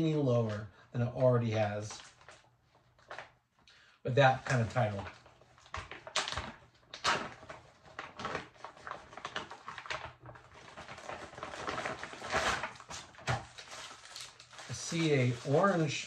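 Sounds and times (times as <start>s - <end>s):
plastic pouch crinkling: 4.3s - 16.0s.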